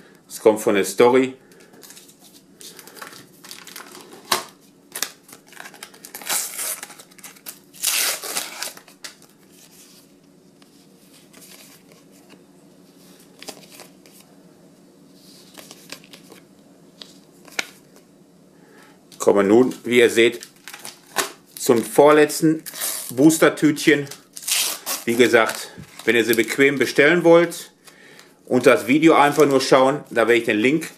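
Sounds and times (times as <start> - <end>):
paper rustling and crinkling: 1.6 - 12.4, 13.0 - 14.3, 15.2 - 16.4, 20.2 - 21.9.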